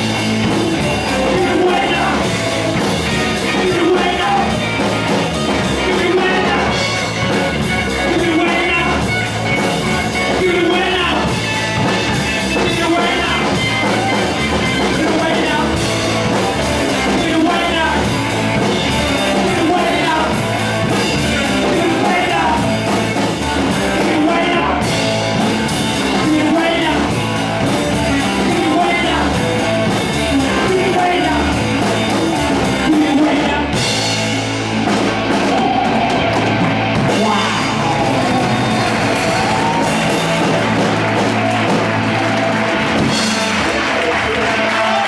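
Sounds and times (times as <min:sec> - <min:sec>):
person singing: 0:00.0 - 0:25.1, 0:26.0 - 0:34.3
bass guitar: 0:00.0 - 0:45.0
drum kit: 0:00.0 - 0:45.0
electric guitar: 0:00.0 - 0:45.0.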